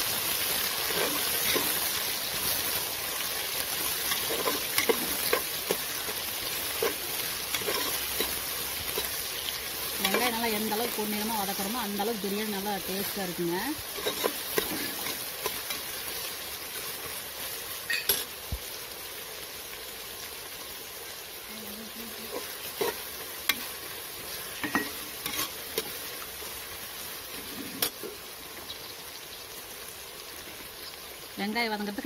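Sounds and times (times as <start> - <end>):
onions sizzling in hot oil: 0.0 - 32.0
steel spoon scraping a pot: 4.1 - 5.8, 6.8 - 8.4, 14.0 - 15.9, 24.6 - 25.6.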